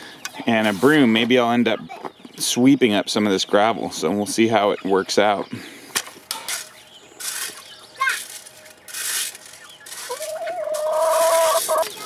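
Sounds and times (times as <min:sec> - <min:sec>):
metal rake scraping gravel: 0:00.5 - 0:01.3, 0:06.3 - 0:12.0.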